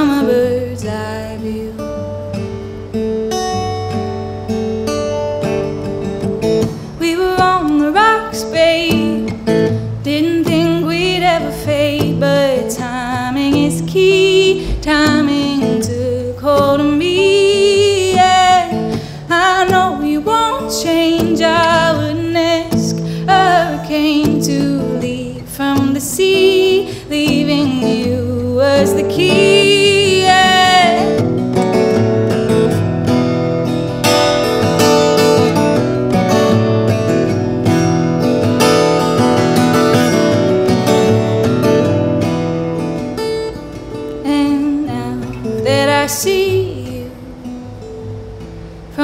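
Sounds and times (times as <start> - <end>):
woman singing: 0.0 - 2.2, 7.0 - 31.7, 44.0 - 47.8
acoustic guitar strumming: 0.0 - 49.0.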